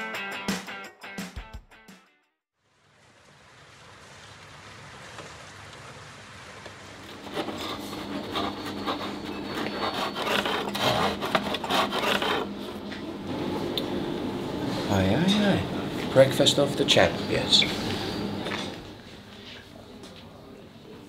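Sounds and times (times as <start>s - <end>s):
knife sawing through bread: 7.1s - 12.8s.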